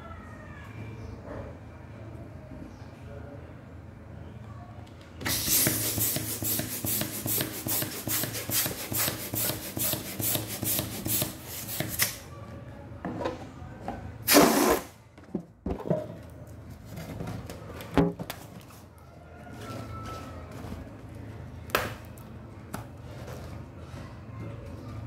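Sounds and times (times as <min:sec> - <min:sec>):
hand balloon pump strokes: 0:05.2 - 0:12.2.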